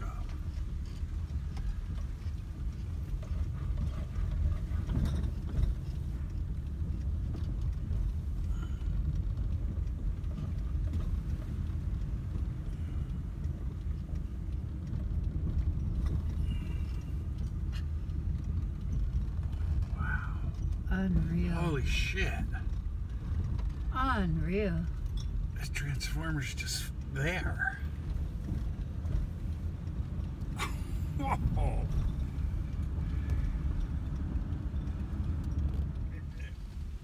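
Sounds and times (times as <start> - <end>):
car engine and tyres rumbling: 0.0 - 37.0.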